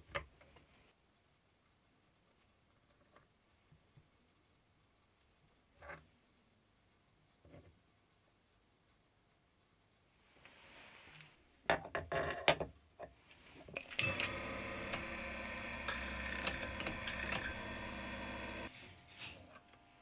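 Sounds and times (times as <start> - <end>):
milling machine motor running: 14.0 - 18.7.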